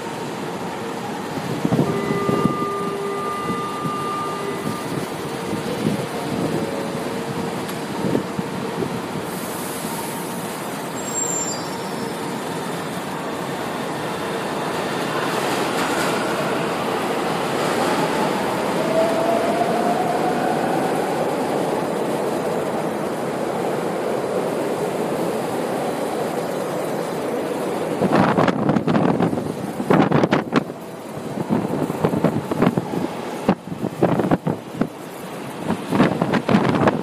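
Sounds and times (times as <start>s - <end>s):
train wheels rumbling on rail: 0.0s - 37.0s.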